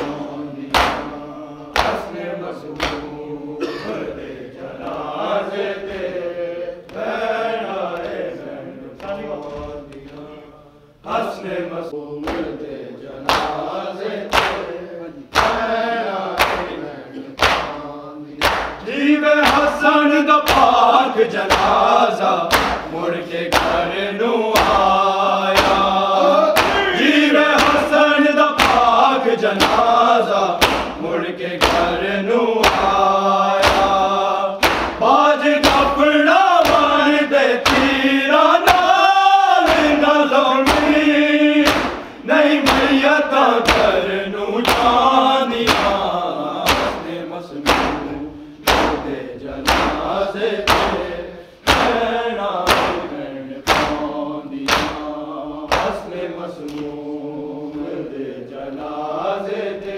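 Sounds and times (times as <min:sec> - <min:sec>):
chest-beating slaps: 0:00.0 - 0:03.3, 0:12.2 - 0:12.6, 0:13.2 - 0:32.0, 0:32.6 - 0:39.0, 0:39.6 - 0:57.1
voices chanting a lament: 0:00.0 - 0:59.9.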